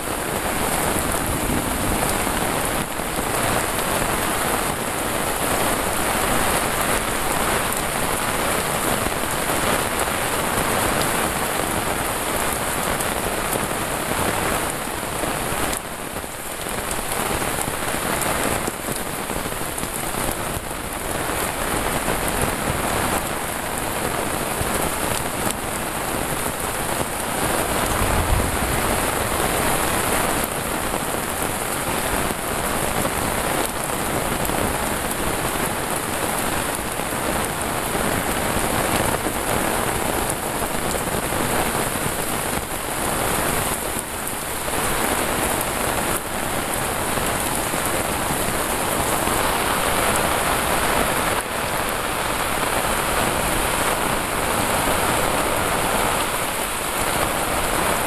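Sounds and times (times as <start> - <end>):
heavy rain on leaves and concrete: 0.0 - 58.0
wind: 0.0 - 58.0
low bump: 27.7 - 29.9.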